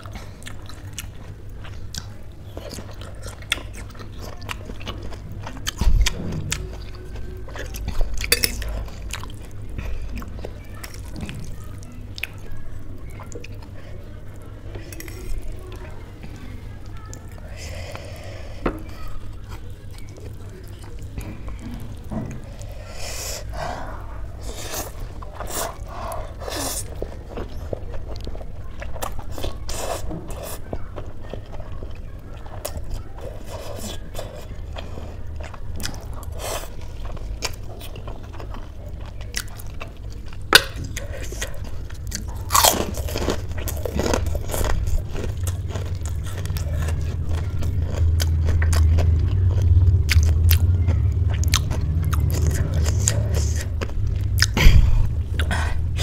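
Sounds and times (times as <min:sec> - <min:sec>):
steady low hum: 0:00.0 - 0:56.0
chewing and slurping noodles: 0:14.5 - 0:56.0.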